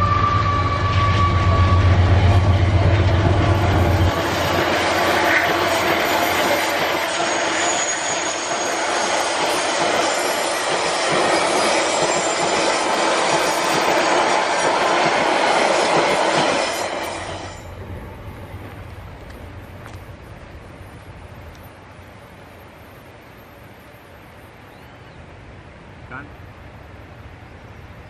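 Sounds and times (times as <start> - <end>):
train wheels on rails: 0.0 - 24.9
faint wheel squeal: 3.6 - 10.5.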